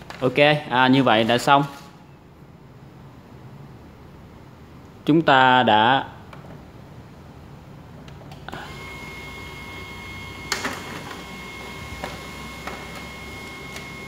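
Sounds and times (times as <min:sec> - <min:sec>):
printer motor whine: 0:08.5 - 0:14.0
printer paper feed clicks: 0:10.5 - 0:14.0.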